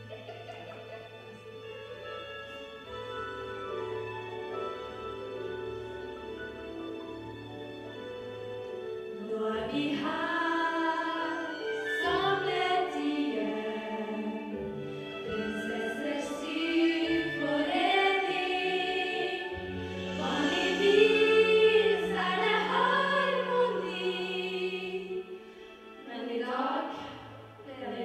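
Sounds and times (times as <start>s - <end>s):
women singing in harmony: 9.1s - 25.4s, 26.0s - 28.0s.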